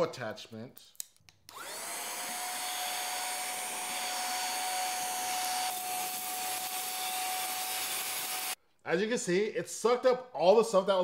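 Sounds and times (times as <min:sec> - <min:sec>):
handheld vacuum running: 0:01.5 - 0:08.6.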